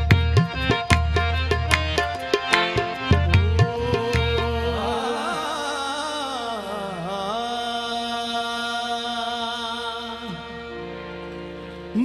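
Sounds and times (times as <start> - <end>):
harmonium drone: 0.0 - 12.0
person singing wordless vocals: 3.4 - 10.6.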